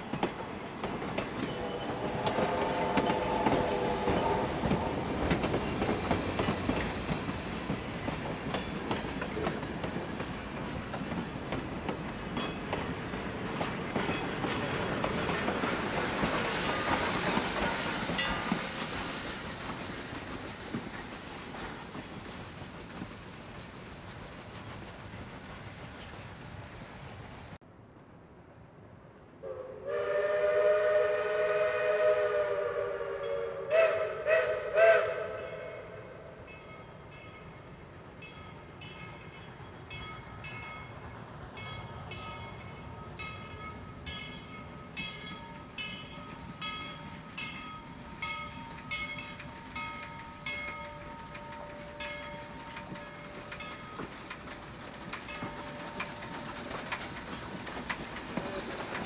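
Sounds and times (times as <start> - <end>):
steam locomotive whistle: 1.5 - 5.3, 29.4 - 36.3
locomotive bell ringing: 41.6 - 58.9.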